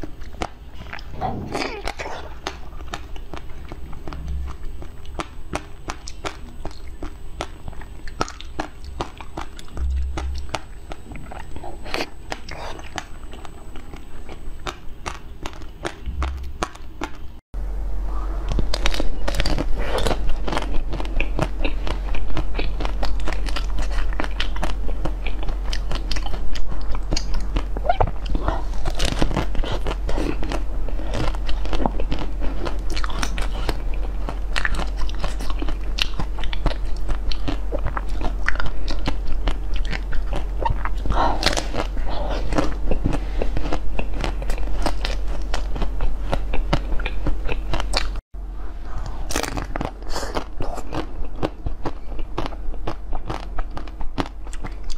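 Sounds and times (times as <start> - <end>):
steady low hum: 0.0 - 54.9
wet chewing of jelly: 1.8 - 17.2, 18.5 - 48.2, 48.9 - 54.9
crunching bites and chewing: 18.5 - 48.2, 49.0 - 54.9.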